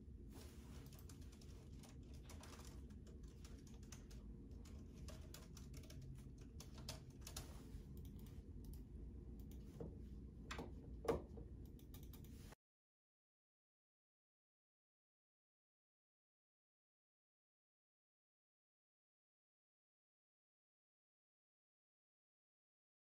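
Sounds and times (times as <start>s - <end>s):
keyboard typing: 0.7s - 8.8s, 10.5s - 12.4s.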